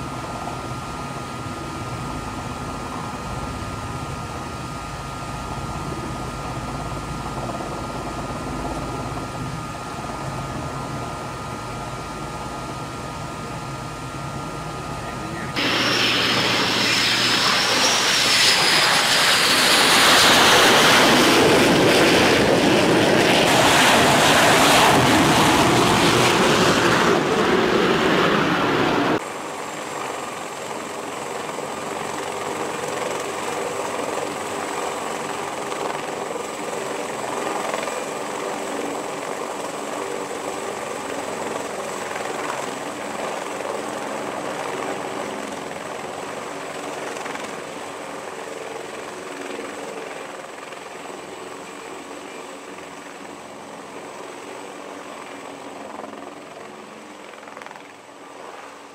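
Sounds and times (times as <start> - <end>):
helicopter turbine and rotor: 0.0 - 58.9
aircraft whine sliding down: 15.5 - 29.2.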